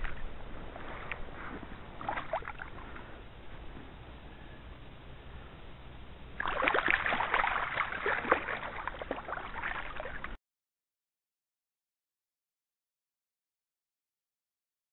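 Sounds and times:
fish splashing in shallow water: 0:00.0 - 0:03.1, 0:06.4 - 0:10.4.

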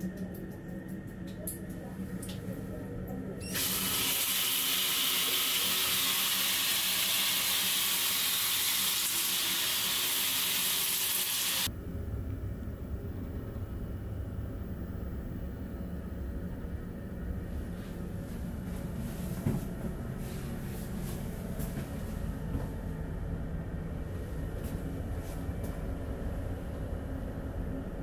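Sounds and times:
water rushing hiss: 0:03.6 - 0:11.7.

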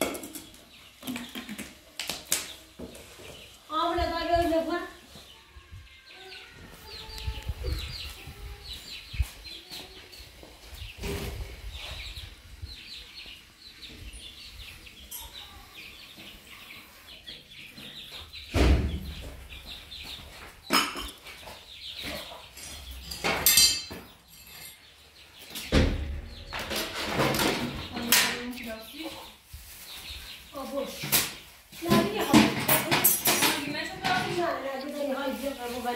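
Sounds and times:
chickens clucking: 0:00.0 - 0:35.9
loud thumps: 0:18.5 - 0:19.4, 0:25.7 - 0:27.9.

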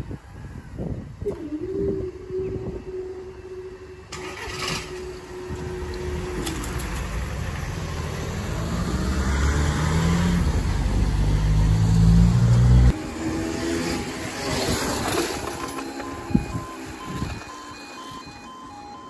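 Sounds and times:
road traffic: 0:00.0 - 0:19.0
van engine: 0:00.0 - 0:19.0
barrier mechanism humming: 0:01.3 - 0:09.2.

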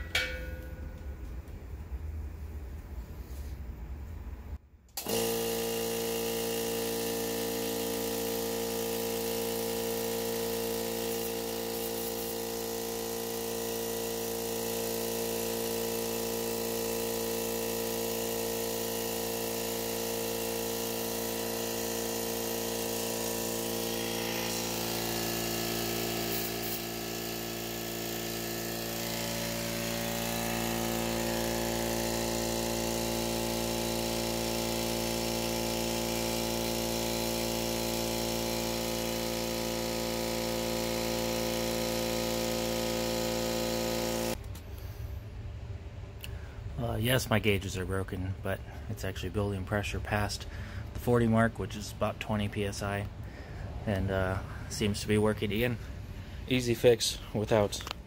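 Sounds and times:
air compressor running: 0:00.0 - 0:01.3, 0:04.9 - 0:47.0, 0:48.3 - 0:58.0.

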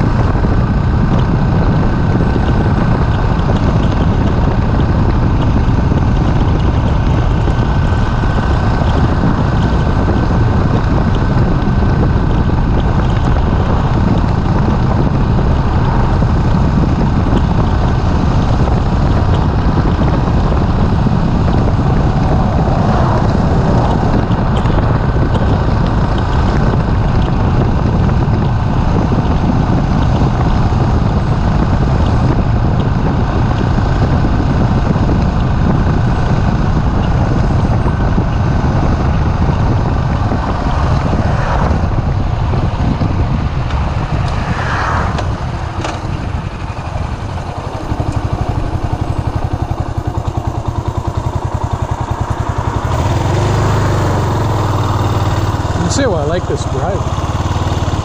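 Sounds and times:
motorcycle engine cruising: 0:00.0 - 0:58.0
wind rush over microphone: 0:00.0 - 0:58.0.

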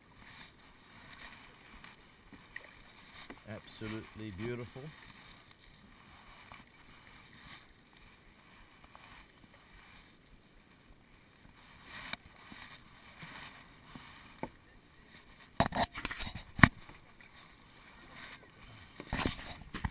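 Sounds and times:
paddle swishes and drips: 0:00.0 - 0:19.9.

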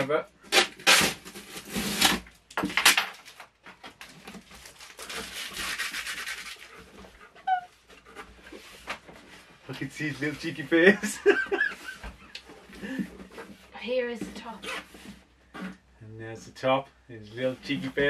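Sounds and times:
packing tape ripping: 0:00.5 - 0:03.5, 0:04.6 - 0:06.7.

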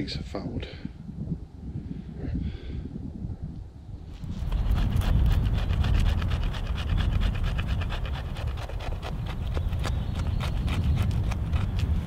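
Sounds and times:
knife scraping wood: 0:04.2 - 0:12.0.

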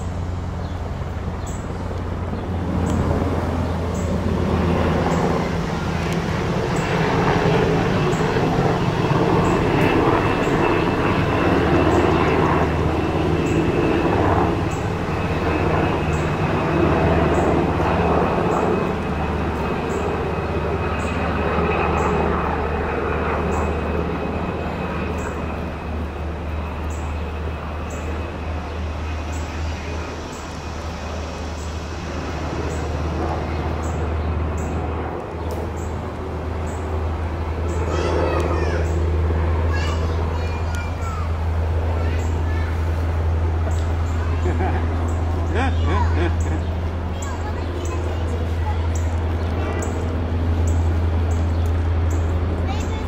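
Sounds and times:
airplane flying overhead: 0:00.0 - 0:53.0.

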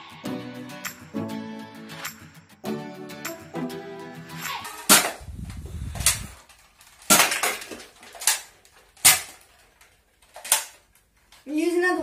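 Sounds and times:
foam darts hitting cans and cups: 0:04.5 - 0:05.2, 0:07.0 - 0:09.5
can falling: 0:07.0 - 0:09.4.

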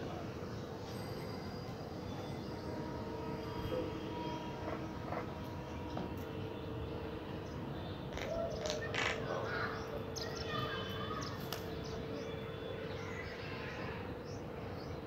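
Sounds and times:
crows cawing: 0:08.1 - 0:09.8.

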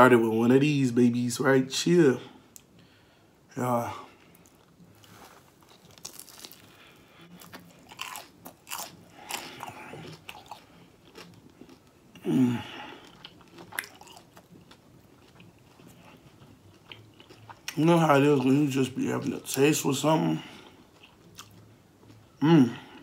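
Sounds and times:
crunchy chewing: 0:04.3 - 0:19.6, 0:20.5 - 0:22.3
person humming: 0:22.4 - 0:23.0.

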